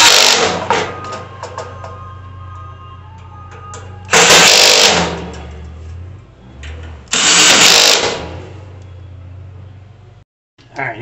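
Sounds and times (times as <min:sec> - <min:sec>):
power drill driving screws: 0:00.0 - 0:00.6, 0:04.3 - 0:05.1, 0:07.1 - 0:08.2.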